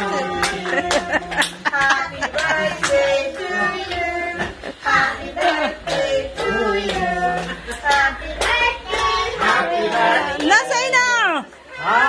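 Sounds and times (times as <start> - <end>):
group singing along: 0.0 - 10.9.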